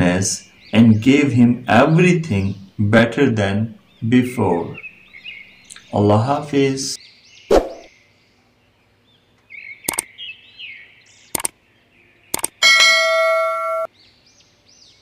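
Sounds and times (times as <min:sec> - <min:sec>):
faint bird chirps: 0:07.0 - 0:12.6
sharp mouse clicks: 0:09.9 - 0:10.1, 0:11.3 - 0:11.6, 0:12.3 - 0:12.6
notification bell ding: 0:12.6 - 0:13.9.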